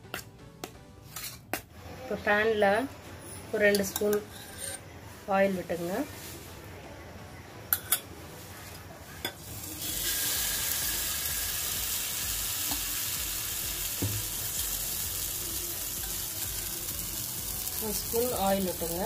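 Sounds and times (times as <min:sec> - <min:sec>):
batter sizzling in hot oil: 0:09.4 - 0:19.0.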